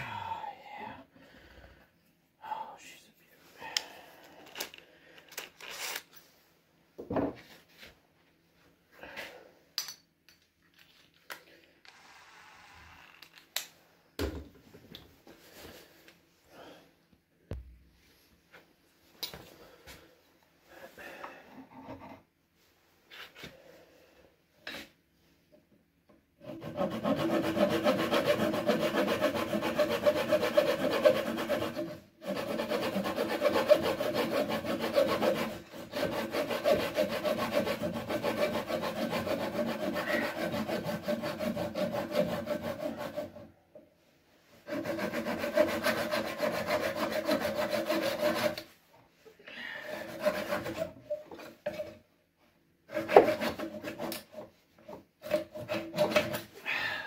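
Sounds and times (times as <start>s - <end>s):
saw cutting through wood: 26.4s - 43.4s, 44.7s - 48.6s, 49.9s - 51.0s, 52.9s - 54.4s, 55.2s - 56.5s.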